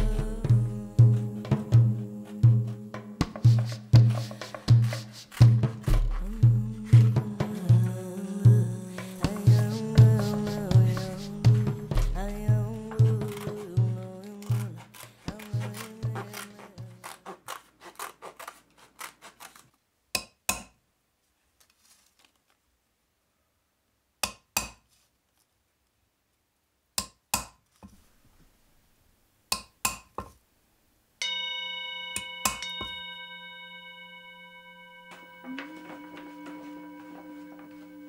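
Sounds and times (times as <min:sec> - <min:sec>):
scissors snipping rawhide: 0:13.2 - 0:19.7
hammer striking hole punch: 0:20.2 - 0:20.7, 0:24.2 - 0:24.8, 0:29.5 - 0:30.2, 0:32.2 - 0:33.0
ringing tone with overtones: 0:31.2 - 0:38.0.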